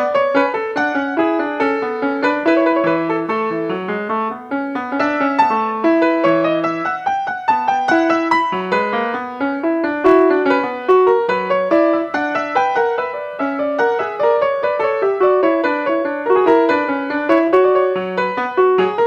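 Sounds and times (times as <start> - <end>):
solo piano piece: 0.0 - 19.0.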